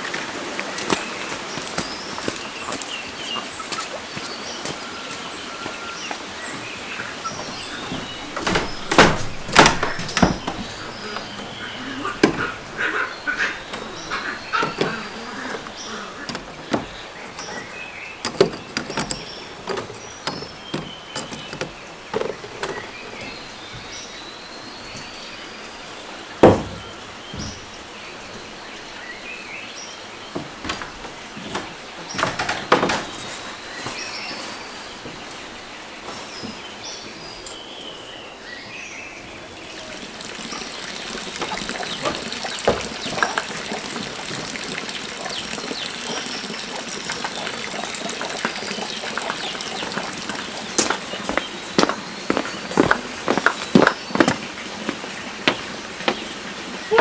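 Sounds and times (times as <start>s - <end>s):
birds chirping: 0.0s - 57.0s
knocks and clatter of handling: 7.3s - 12.8s, 13.6s - 23.9s, 30.3s - 34.0s.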